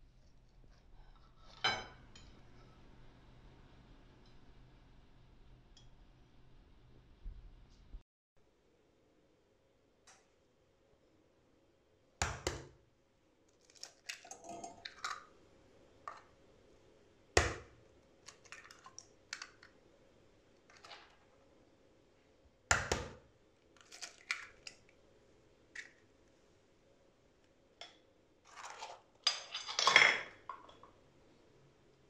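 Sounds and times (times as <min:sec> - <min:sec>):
eggs tapped and cracked: 0:17.4 - 0:19.8, 0:22.7 - 0:23.2.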